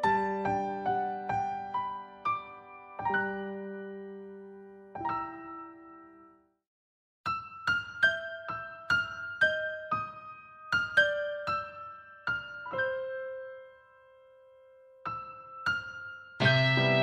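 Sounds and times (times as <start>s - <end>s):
high piano melody: 0.0s - 6.6s, 7.3s - 17.0s
band with bass: 16.4s - 17.0s.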